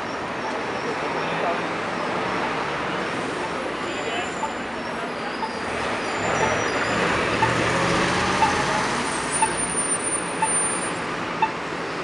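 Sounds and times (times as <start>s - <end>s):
buses passing: 0.0s - 12.0s
pedestrian crossing signal ticks: 5.3s - 11.6s.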